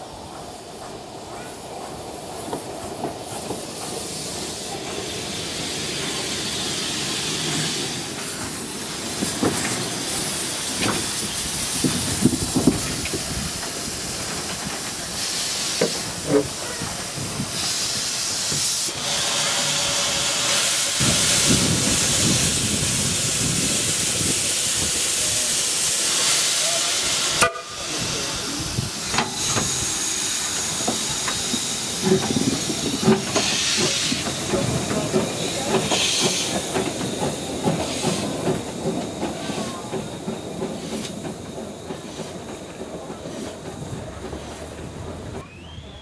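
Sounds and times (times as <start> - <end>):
steam locomotive hissing: 0.0 - 46.0.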